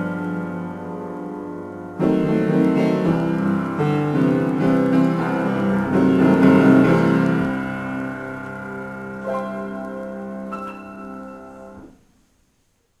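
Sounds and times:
piano improvisation: 0.0s - 12.1s.

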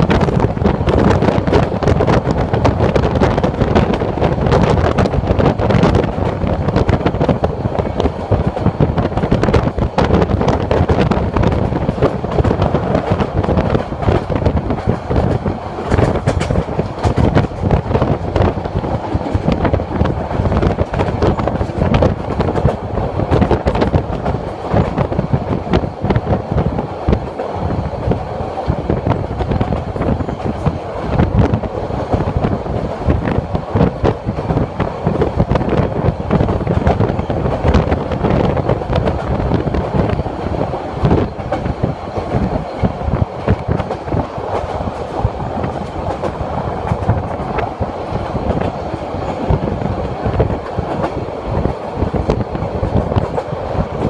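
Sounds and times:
rushing wind: 0.0s - 54.0s
train wheels clattering over rails: 0.0s - 54.0s.

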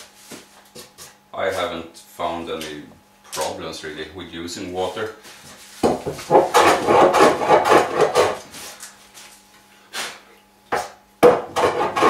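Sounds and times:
hand plane rasping on wood: 6.2s - 8.4s, 11.5s - 12.0s.

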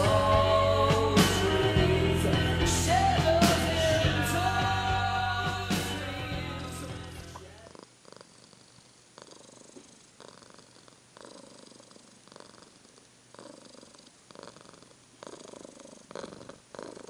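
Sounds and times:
cat purring: 7.1s - 17.0s.

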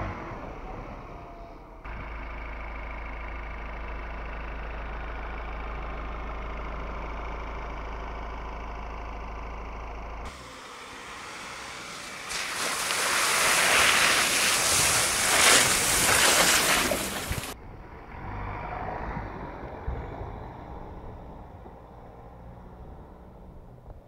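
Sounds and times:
low engine rumble: 0.0s - 24.0s
tyres splashing through mud puddles: 10.5s - 17.6s.

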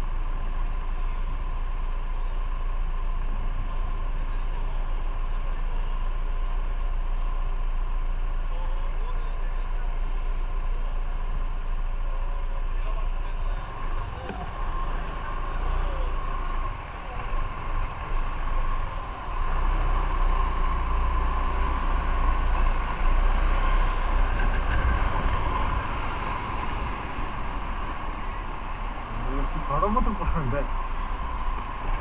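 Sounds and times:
motorcycle engine rumbling: 10.8s - 32.0s.

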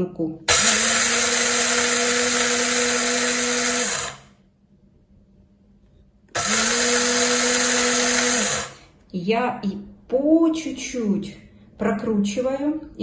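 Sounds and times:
coffee grinder whirring: 0.5s - 4.4s, 6.3s - 8.8s.

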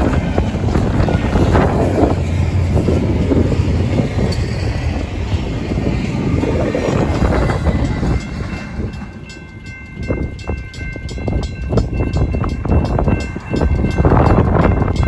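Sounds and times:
train rumble: 0.0s - 15.0s
crossing bells ringing: 6.4s - 15.0s.

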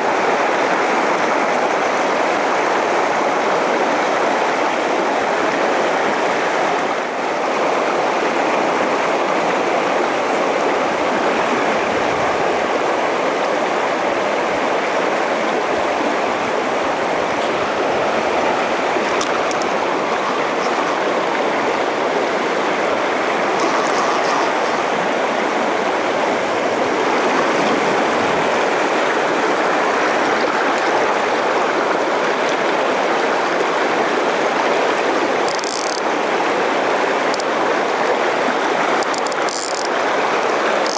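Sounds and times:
river rushing over a riffle: 0.0s - 40.9s.

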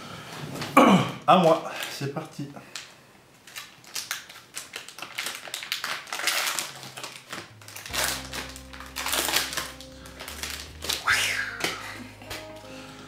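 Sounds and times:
card pack wrapper crinkling and tearing: 2.7s - 12.7s
background music: 7.0s - 13.0s.

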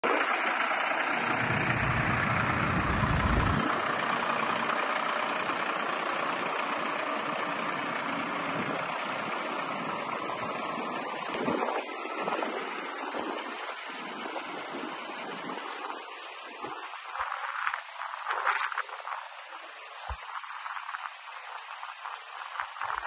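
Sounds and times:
diesel engine idling: 0.0s - 23.0s
low rumble: 1.2s - 4.7s.

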